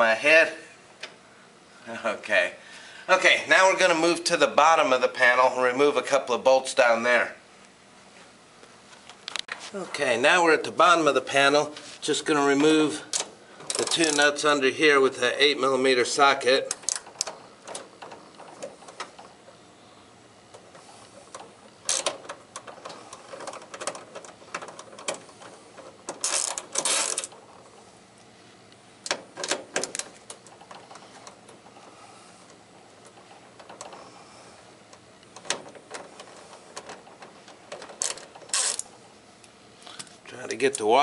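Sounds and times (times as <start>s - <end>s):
ratchet clicking: 21.3s - 25.2s, 26.1s - 27.4s, 37.7s - 38.9s.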